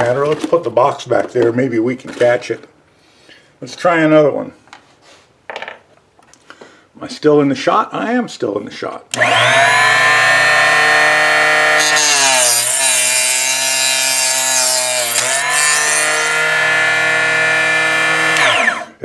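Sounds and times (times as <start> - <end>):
electric cutoff saw running: 9.2 - 19.0.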